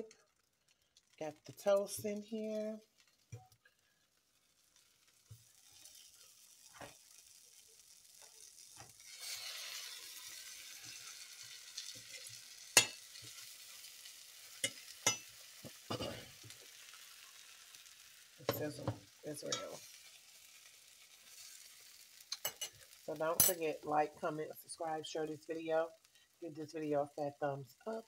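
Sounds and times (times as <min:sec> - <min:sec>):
bread sizzling in a frying pan: 0:00.0 - 0:28.0
metal fork clicking on pan: 0:14.6 - 0:15.3, 0:19.4 - 0:19.8, 0:22.3 - 0:22.8.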